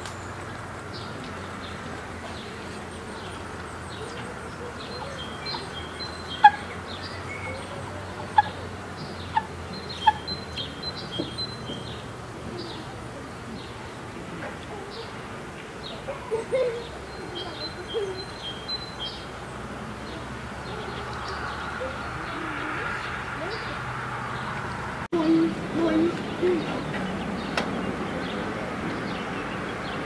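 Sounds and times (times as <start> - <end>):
songbirds chirping and singing: 0.1 - 30.0.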